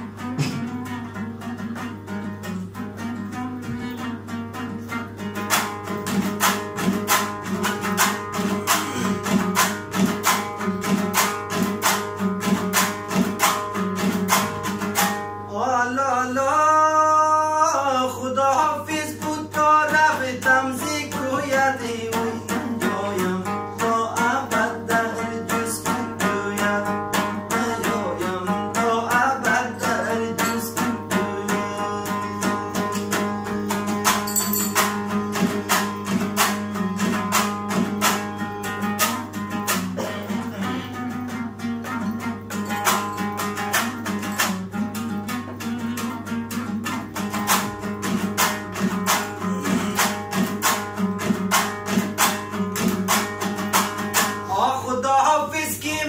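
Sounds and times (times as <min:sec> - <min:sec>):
lute strummed fast: 0:00.0 - 0:16.0, 0:17.9 - 0:55.1
man singing: 0:15.5 - 0:34.2, 0:49.0 - 0:50.7, 0:54.2 - 0:56.0.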